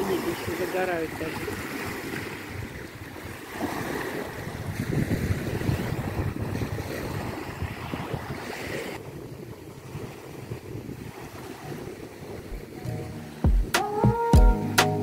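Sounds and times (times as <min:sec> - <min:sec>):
small waves lapping on beach: 0:00.0 - 0:13.4
wind on microphone: 0:00.0 - 0:14.0.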